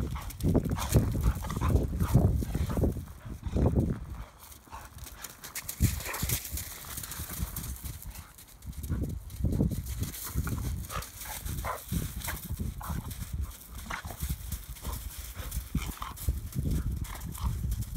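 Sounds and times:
dogs scuffling: 3.8s - 17.9s.

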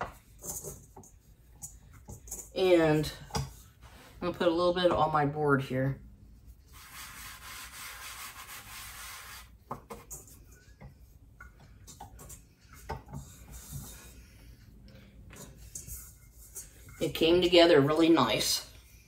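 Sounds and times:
hand brushing flour on board: 6.4s - 10.2s.

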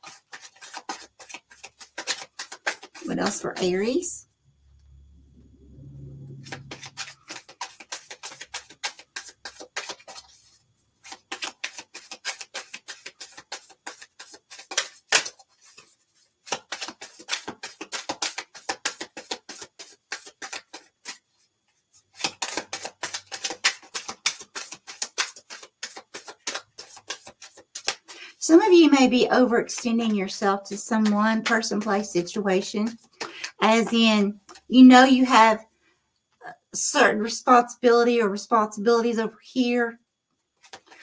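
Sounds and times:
cards being shuffled: 0.0s - 3.7s, 6.4s - 21.2s, 22.1s - 28.3s, 29.7s - 34.6s, 40.6s - 41.0s.

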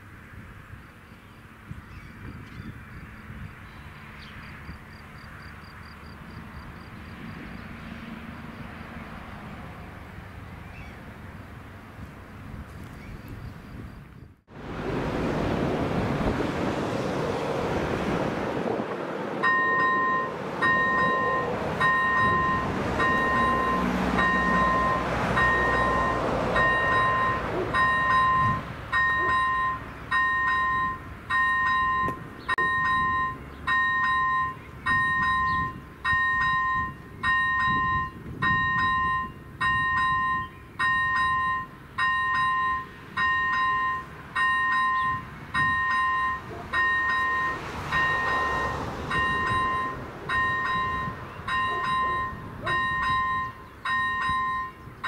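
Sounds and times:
broad rumble: 14.5s - 28.9s
level-crossing bell chiming: 19.4s - 54.9s.

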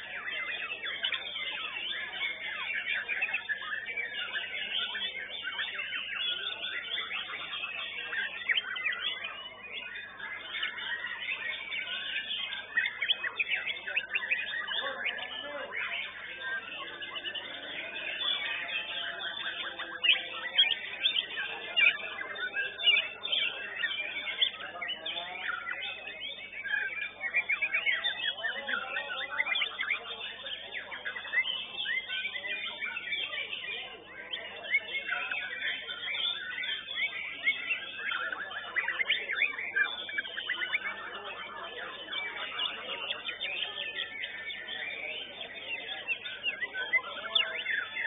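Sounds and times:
chorus of birds singing: 0.0s - 48.0s
songbirds whistling and trilling: 0.0s - 48.0s.

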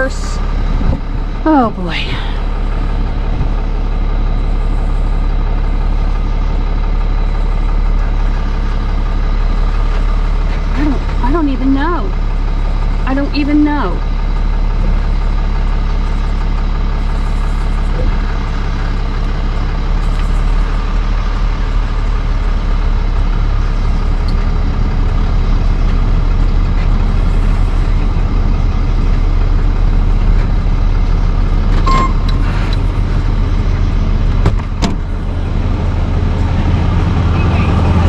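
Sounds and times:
truck engine low hum: 0.0s - 38.0s
short beep: 31.8s - 32.5s.

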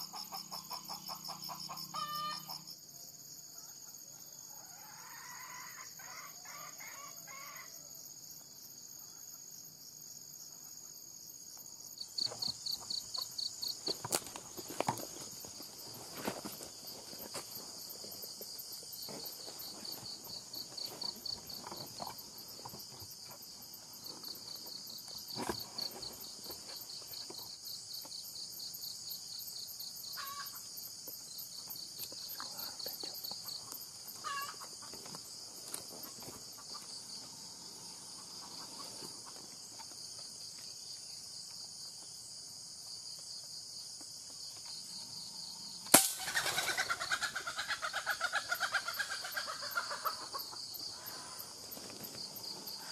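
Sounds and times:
junglefowl clucking alarm calls: 0.0s - 2.6s, 34.2s - 35.0s, 46.2s - 51.4s
pulsing insect chorus: 0.0s - 52.9s
footsteps in undergrowth: 13.6s - 24.5s, 34.0s - 37.0s.

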